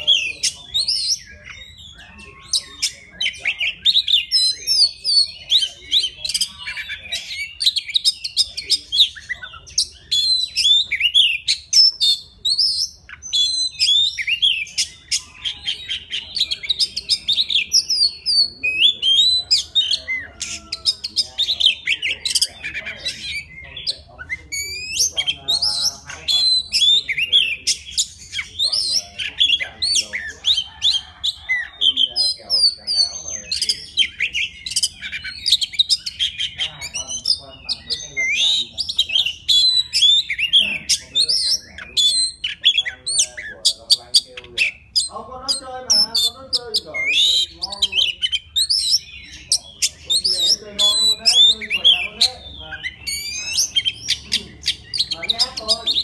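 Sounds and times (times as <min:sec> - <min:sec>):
bird singing whistles and trills: 0:00.0 - 0:56.0.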